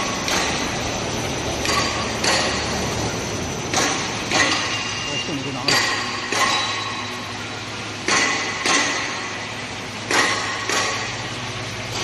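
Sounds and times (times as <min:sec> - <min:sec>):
die cutter sharp knocks: 0:00.0 - 0:00.6, 0:01.6 - 0:02.7, 0:03.7 - 0:04.9, 0:05.7 - 0:07.0, 0:08.0 - 0:09.4, 0:10.0 - 0:11.2.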